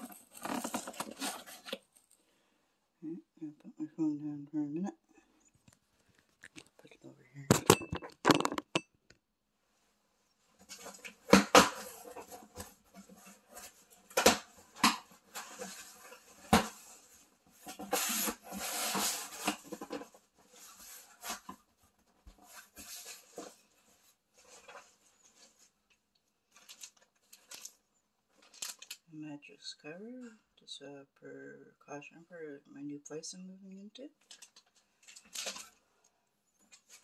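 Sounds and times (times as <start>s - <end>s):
cardboard flaps scraping and rustling: 0.0s - 1.9s
knocks and crinkles of handling: 0.0s - 2.3s, 5.4s - 29.1s, 34.2s - 37.0s.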